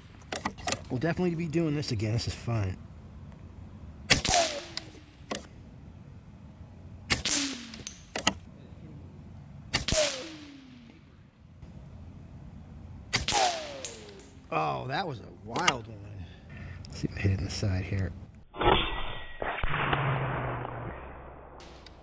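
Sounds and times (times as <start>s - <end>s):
ricochet whine: 3.3s - 5.9s, 6.8s - 8.5s, 9.3s - 12.0s, 12.9s - 14.8s, 18.2s - 22.0s
air rifle shots: 4.1s - 5.5s, 7.1s - 8.4s, 9.7s - 10.8s, 13.1s - 14.4s.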